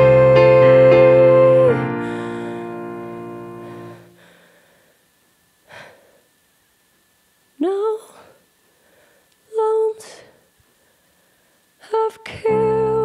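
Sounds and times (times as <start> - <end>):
woman singing a long note: 0.0 - 3.6, 11.8 - 13.0
piano chords: 0.0 - 4.2, 12.5 - 13.0
short breath: 2.0 - 2.8, 3.6 - 5.0, 5.7 - 6.3, 8.1 - 9.3.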